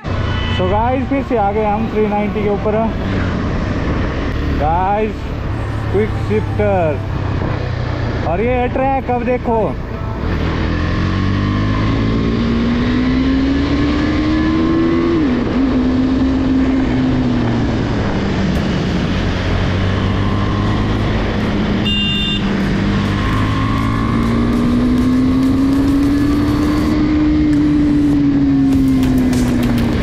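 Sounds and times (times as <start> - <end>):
motorcycle engine revving: 10.2 - 30.0.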